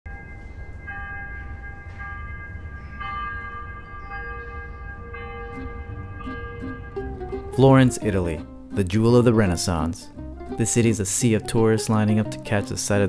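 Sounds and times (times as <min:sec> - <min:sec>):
church bells ringing: 0:00.1 - 0:09.8
steady low rumble: 0:04.8 - 0:08.7.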